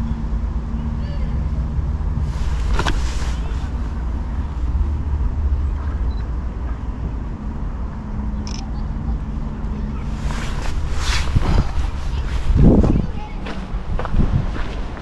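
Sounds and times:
wind rumble on microphone: 0.0 - 15.0
footsteps on a path: 2.2 - 4.9, 10.1 - 15.0.

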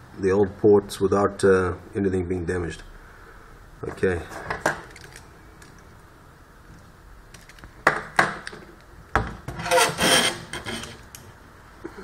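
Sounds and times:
circuit board scraping and rattling: 9.5 - 11.1.

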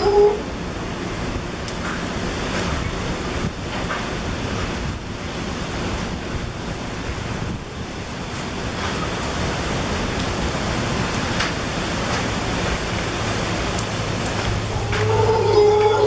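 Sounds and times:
howler monkeys howling: 0.0 - 0.5, 14.6 - 16.0.

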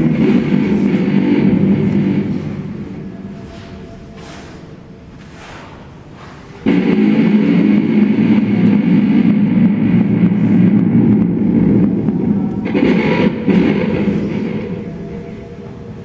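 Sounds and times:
distorted electric guitar drone: 0.0 - 5.5, 6.6 - 16.0
quiet low drone: 0.0 - 16.0.

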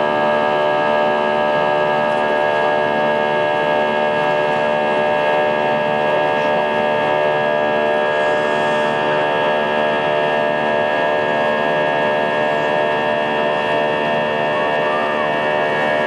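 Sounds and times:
jet engine drone in cabin: 0.0 - 16.0.

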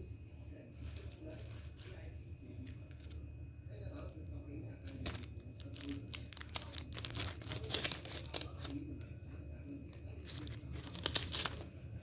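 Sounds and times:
plastic packet crinkling: 4.8 - 8.8, 9.9 - 11.7.

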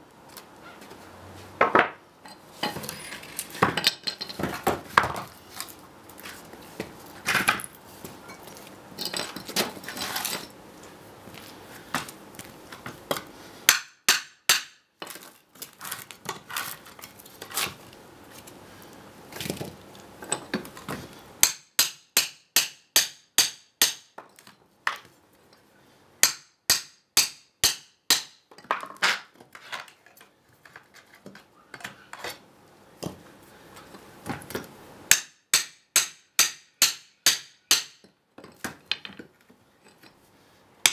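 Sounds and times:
wooden blocks knocking and clattering: 1.6 - 2.0, 2.6 - 5.8, 6.8 - 7.7, 28.1 - 32.3, 36.9 - 40.2
hammer striking steel pry bar: 13.7 - 14.8, 21.4 - 24.2, 26.2 - 28.4, 35.1 - 38.1.

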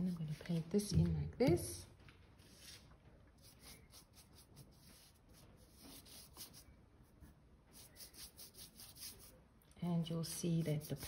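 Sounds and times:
paintbrush swishing on paper: 2.4 - 9.4, 10.3 - 11.0.

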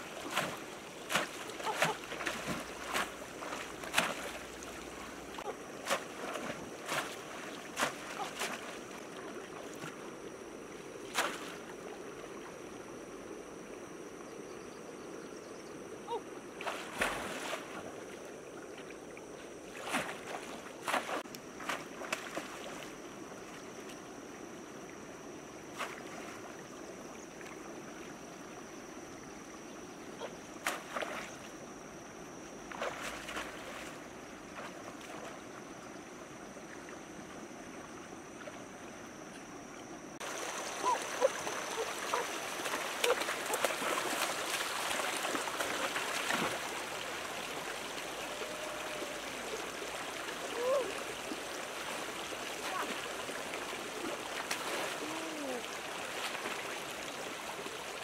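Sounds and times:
splashes and knocks in water: 0.0 - 10.1, 11.0 - 11.9, 16.6 - 18.1, 19.7 - 23.0, 25.7 - 26.6, 30.2 - 31.5, 32.7 - 35.7, 40.2 - 58.0
stream flowing over rocks: 40.2 - 58.0.

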